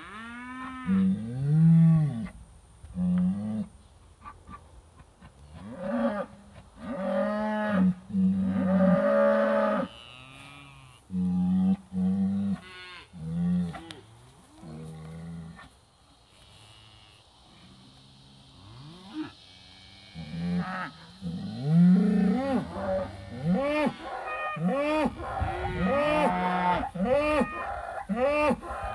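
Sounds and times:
cattle mooing: 18.7s - 28.9s.

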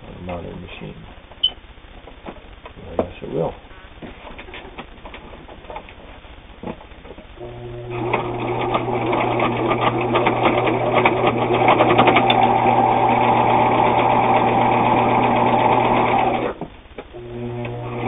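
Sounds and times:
sewing machine motor hum: 7.4s - 16.6s, 17.2s - 18.0s.

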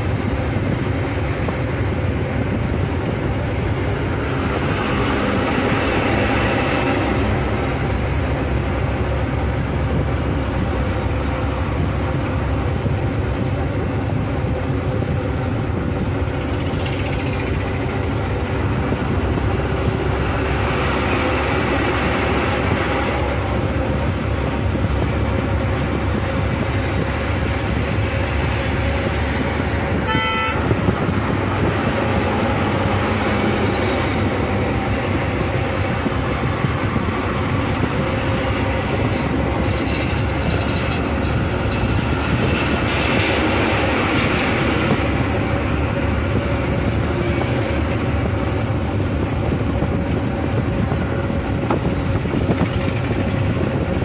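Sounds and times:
bus engine and road noise: 0.0s - 54.0s
vehicle horn toot: 30.0s - 30.8s.

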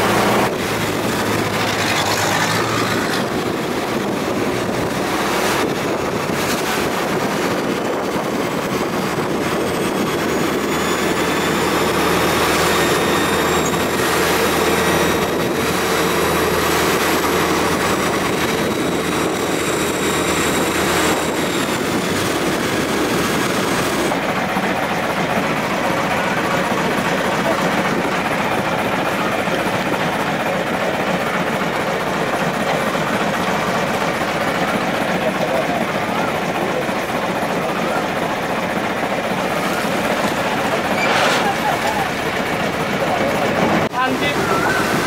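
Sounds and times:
boat engine droning: 0.0s - 45.0s.

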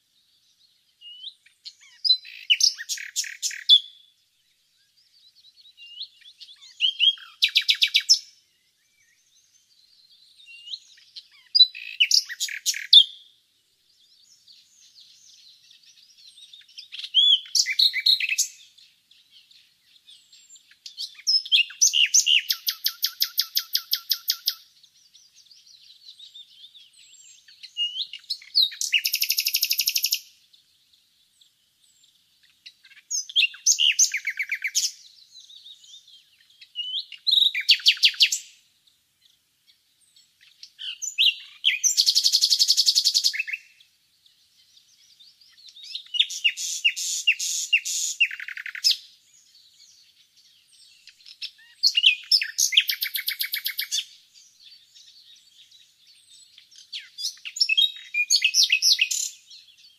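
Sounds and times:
nightingale singing: 0.0s - 59.9s.

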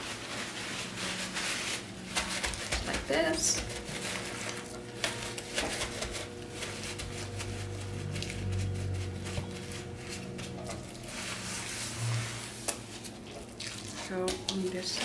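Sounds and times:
paper towel crinkling: 0.0s - 15.0s.

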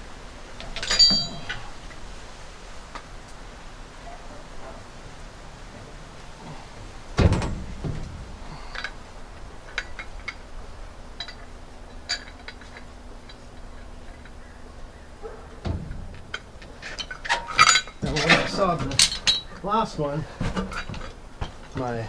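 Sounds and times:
light clicks and clinks: 0.6s - 2.0s, 8.0s - 10.5s, 11.1s - 14.6s, 15.2s - 19.7s
heavy thuds of log: 6.4s - 8.6s, 15.6s - 16.4s.

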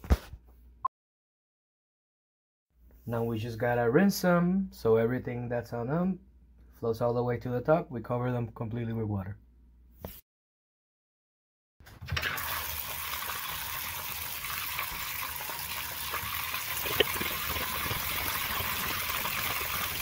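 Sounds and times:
faucet pouring water into a tub: 12.2s - 20.0s.

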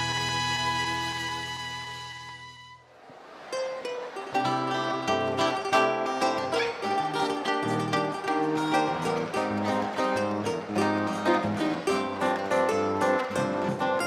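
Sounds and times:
strummed cavaquinhos and guitars: 0.0s - 14.0s.

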